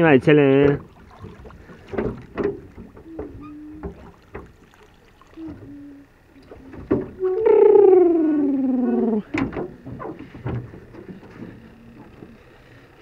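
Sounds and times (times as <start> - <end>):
oars knocking in oarlocks: 0.6 - 4.6
oarlock creaking squeaks: 2.5 - 4.2.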